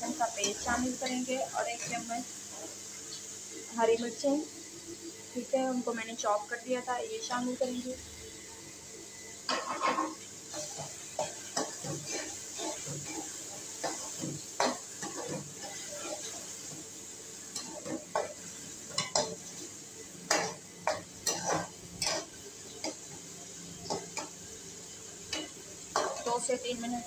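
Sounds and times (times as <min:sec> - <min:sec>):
frying in oil sizzling: 0:00.0 - 0:27.0
spoon scraping metal pan: 0:09.5 - 0:16.4.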